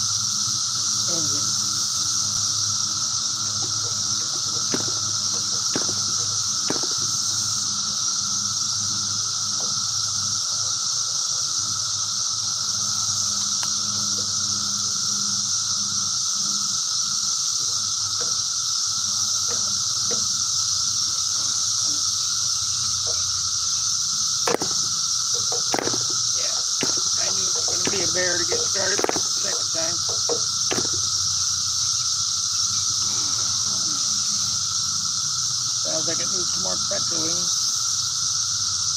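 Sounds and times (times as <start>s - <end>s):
steady high hiss: 0.0s - 38.9s
propeller flipping clicks: 26.8s - 31.0s.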